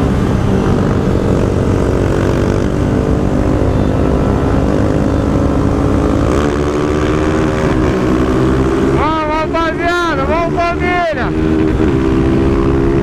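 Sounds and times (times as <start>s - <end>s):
motorcycle engine running: 0.0s - 13.0s
second motorcycle: 0.0s - 13.0s.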